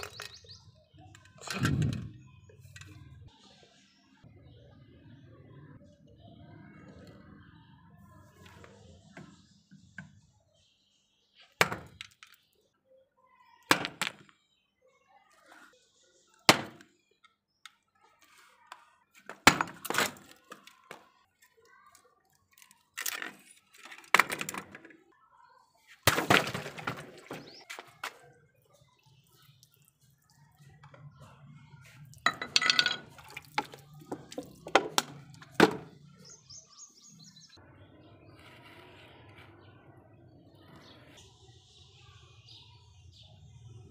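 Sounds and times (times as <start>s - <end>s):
wooden handle cracking and splintering: 16.5s - 16.9s, 19.2s - 21.5s, 22.3s - 24.9s, 26.0s - 28.2s, 32.1s - 36.0s.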